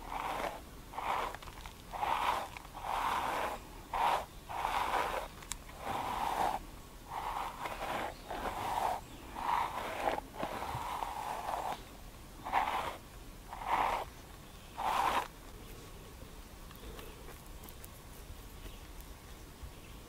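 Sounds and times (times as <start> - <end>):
hairbrush brushing a beard: 0.0 - 14.2, 14.8 - 15.3.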